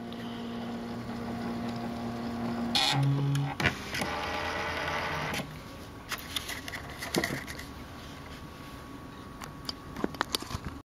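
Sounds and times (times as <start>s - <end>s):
typewriter print mechanism running: 0.7s - 5.5s.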